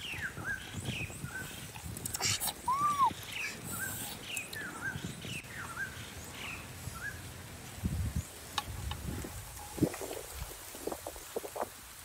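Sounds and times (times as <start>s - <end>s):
small bird chirping: 0.0s - 7.2s.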